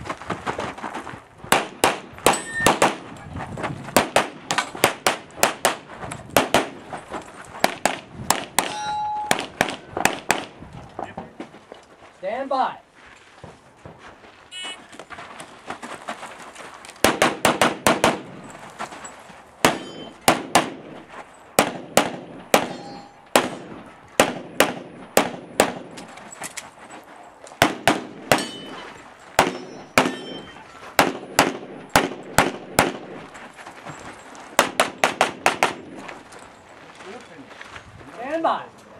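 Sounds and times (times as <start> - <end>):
rapid pistol shots: 1.5 - 3.0, 4.0 - 5.8, 6.4 - 6.8, 7.6 - 8.7, 17.0 - 18.3, 19.6 - 21.0, 21.6 - 26.0, 27.6 - 28.5, 31.0 - 33.2, 34.6 - 35.9.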